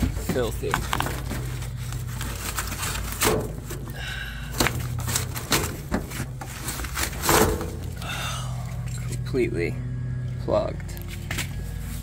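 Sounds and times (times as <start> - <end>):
knocks and rustles of filter: 0.0 - 8.0
steady low hum: 0.0 - 12.0.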